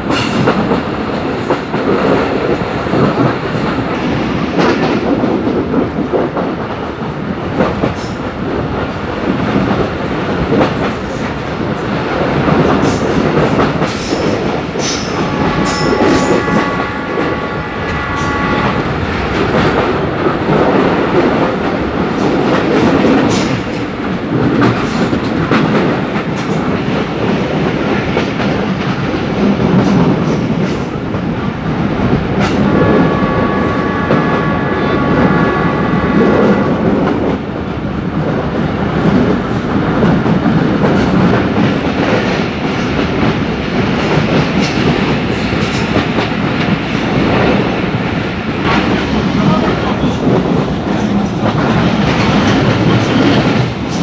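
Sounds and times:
train clatters: 0.0s - 54.0s
train wheels rumbling on rails: 0.0s - 54.0s
locomotive horn chord: 14.9s - 21.4s, 32.4s - 37.6s.

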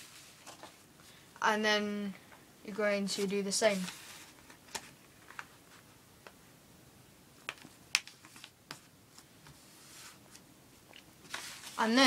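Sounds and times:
paper crinkling and creasing: 0.0s - 0.8s, 3.2s - 5.9s, 7.6s - 12.0s
soft rubbing of paper: 0.0s - 0.8s, 3.0s - 4.6s, 8.2s - 10.4s, 11.2s - 12.0s.

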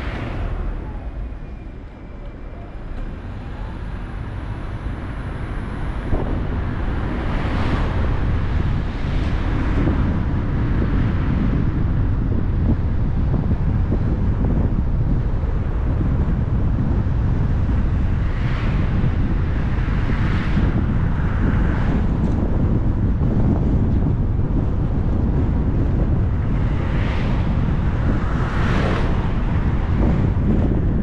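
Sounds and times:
car tyre and wind noise: 0.0s - 31.0s.

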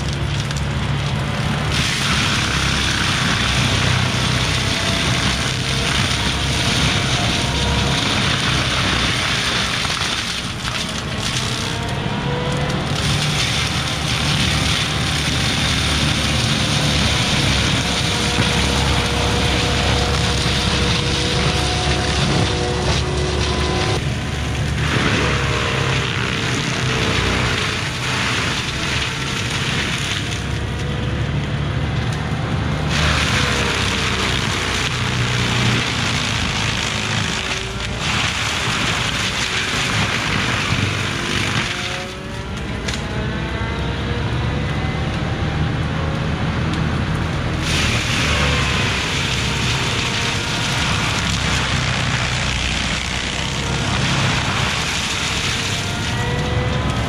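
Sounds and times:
diesel engine running hard: 0.0s - 57.0s
hydraulic mulcher whine: 0.0s - 57.0s.

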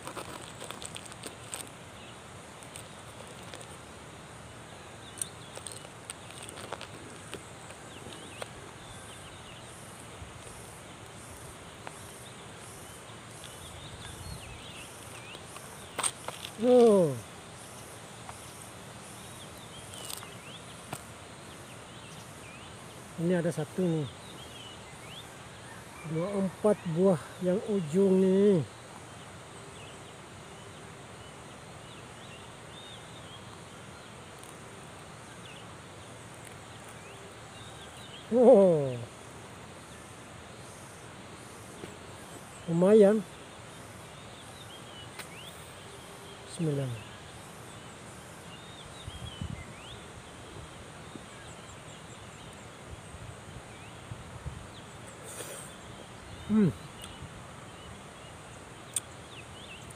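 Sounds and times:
insects droning and pulsing: 0.0s - 59.9s
bird chirping: 4.7s - 34.6s, 54.7s - 59.9s.

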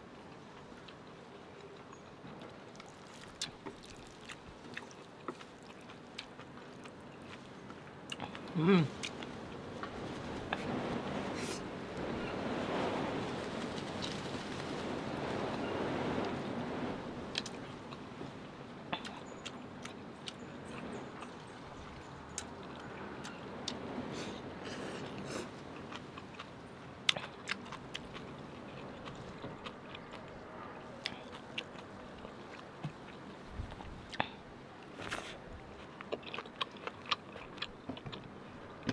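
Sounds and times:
chewing with wet mouth clicks: 0.3s - 9.3s, 19.0s - 21.5s, 25.0s - 34.4s, 35.0s - 38.3s.

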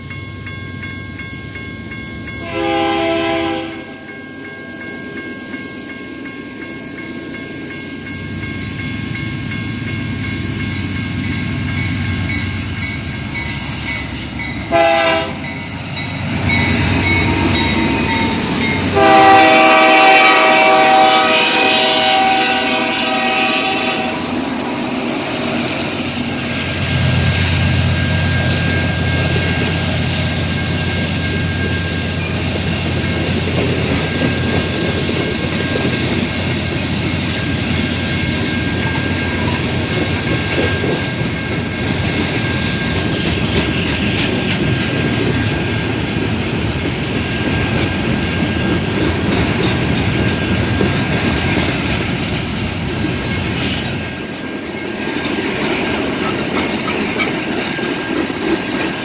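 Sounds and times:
freight train rumbling past: 0.0s - 59.0s
train horn blast: 2.4s - 4.0s, 14.7s - 15.5s, 17.2s - 24.5s
wheels clacking over rail joints: 28.3s - 59.0s.

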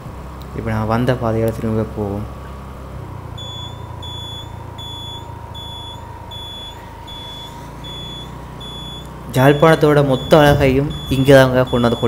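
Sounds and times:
running vehicle hum: 0.0s - 12.0s
vehicle electronic beeper: 3.3s - 12.0s.

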